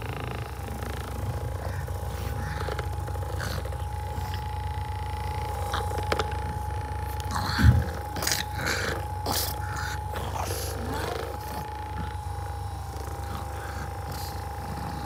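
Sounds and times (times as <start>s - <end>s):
massage gun whining and buzzing: 0.0s - 15.0s.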